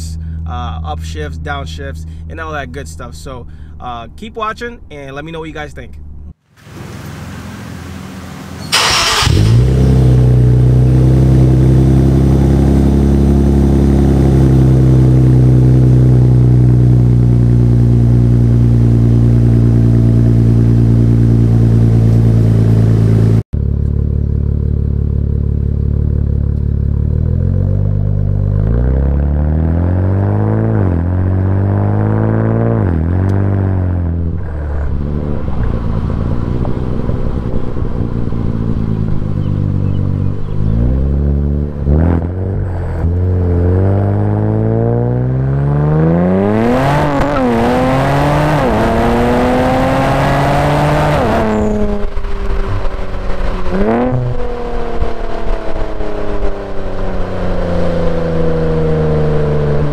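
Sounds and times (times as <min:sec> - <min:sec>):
car exhaust revving while driving: 0:08.2 - 0:59.9
engine starter: 0:08.5 - 0:10.0.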